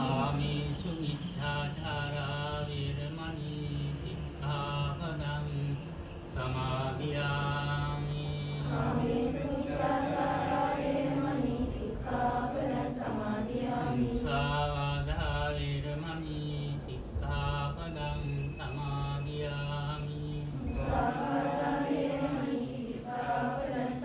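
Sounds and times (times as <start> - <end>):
steady low hum: 0.0 - 24.0
group of voices chanting: 8.6 - 14.7, 20.7 - 24.0.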